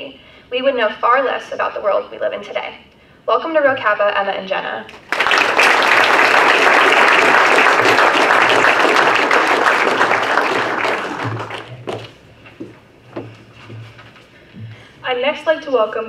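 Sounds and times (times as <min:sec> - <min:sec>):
audience applauding: 0:04.9 - 0:12.1.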